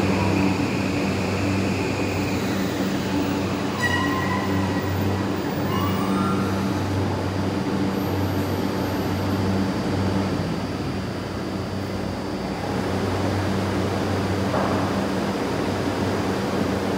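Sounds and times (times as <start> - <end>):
train motor whine: 0.0 - 10.7
train rumble with low hum: 0.0 - 16.9.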